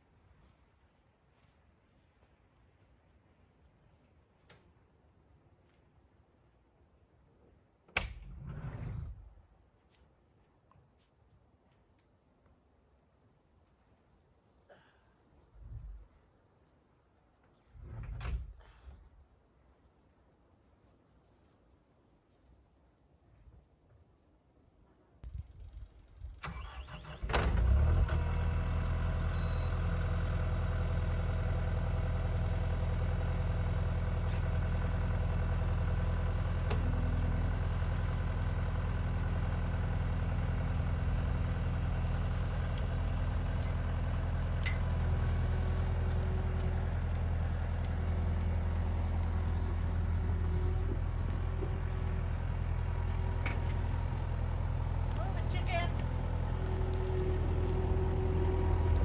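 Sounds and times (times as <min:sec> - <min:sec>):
engine running steadily: 0:25.2 - 0:59.0
engine cranking: 0:26.4 - 0:28.0.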